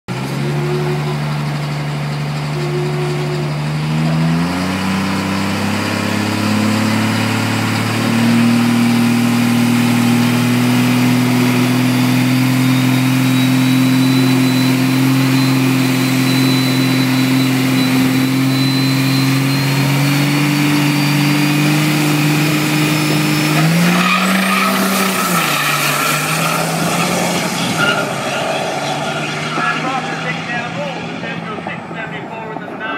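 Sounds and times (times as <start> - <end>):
diesel truck engine roaring: 0.0 - 32.9
turbo whistle: 0.4 - 1.2, 2.5 - 3.7, 11.6 - 30.6.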